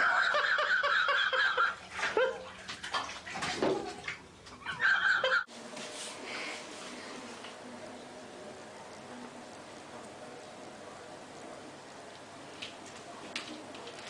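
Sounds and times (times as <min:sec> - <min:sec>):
bath water splashing: 0:00.0 - 0:05.2
faint room noise: 0:00.0 - 0:14.0.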